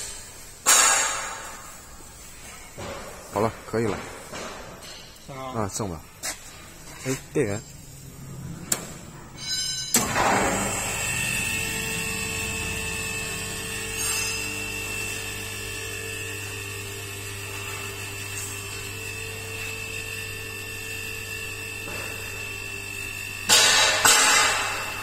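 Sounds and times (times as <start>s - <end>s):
hydraulic pump humming and whining: 6.2s - 25.0s.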